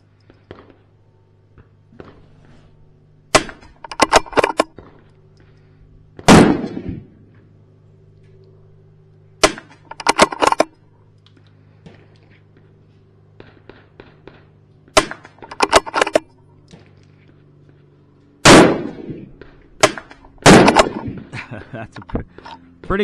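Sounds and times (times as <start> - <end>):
rifle shots: 3.3 - 5.0, 6.2 - 7.2, 9.4 - 10.7, 13.4 - 16.2, 18.4 - 21.3
rifle mechanism clicks: 3.4 - 4.8, 9.4 - 11.5, 15.0 - 16.8, 19.8 - 21.0.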